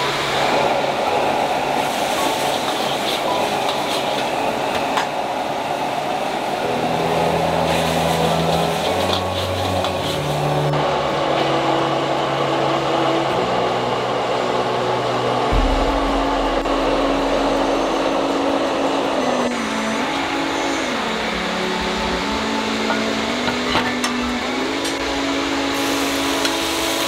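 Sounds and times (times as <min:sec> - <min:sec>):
gas burner roaring: 0:00.0 - 0:27.0
food sizzling in wok: 0:07.0 - 0:10.8, 0:25.3 - 0:27.0.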